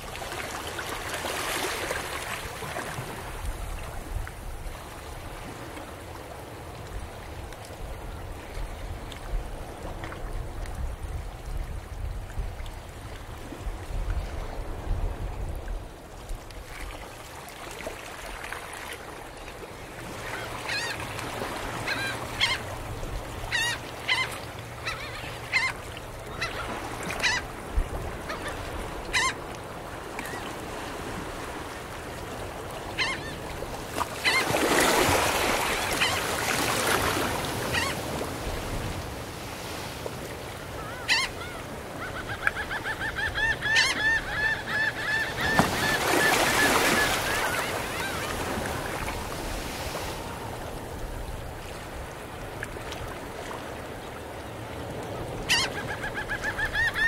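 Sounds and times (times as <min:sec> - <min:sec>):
waves washing onto shore: 0:00.0 - 0:42.6, 0:45.1 - 0:56.1
gulls calling: 0:20.2 - 0:22.8, 0:23.4 - 0:27.5, 0:34.2 - 0:38.1, 0:40.7 - 0:49.3, 0:55.4 - 0:57.0.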